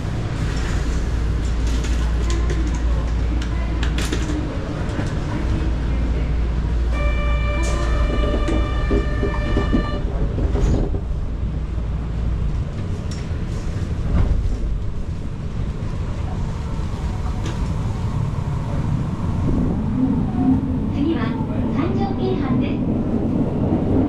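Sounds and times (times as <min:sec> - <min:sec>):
subway train rumbling: 0:00.0 - 0:24.0.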